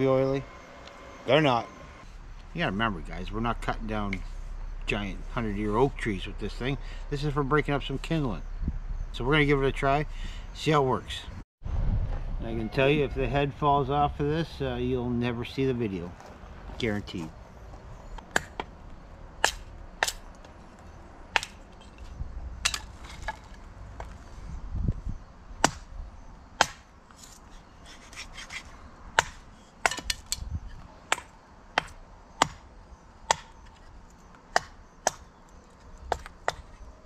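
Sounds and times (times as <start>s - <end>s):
hatchet chopping kindling: 18.2s - 18.7s, 19.4s - 20.5s, 21.3s - 21.8s, 25.6s - 25.9s, 26.6s - 26.9s, 29.2s - 30.4s, 31.1s - 33.8s, 34.5s - 35.3s, 36.1s - 36.8s.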